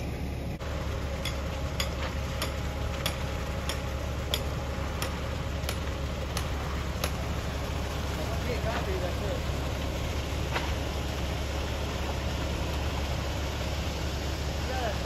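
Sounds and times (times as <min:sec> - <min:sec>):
concrete mixer truck rumbling: 0:00.0 - 0:15.0.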